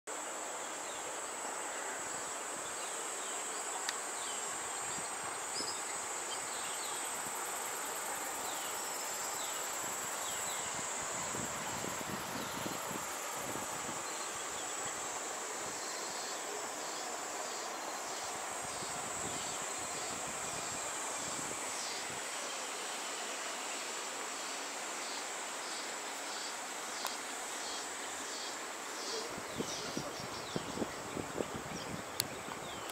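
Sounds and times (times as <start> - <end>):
insect high-pitched trill: 0.8 - 32.9.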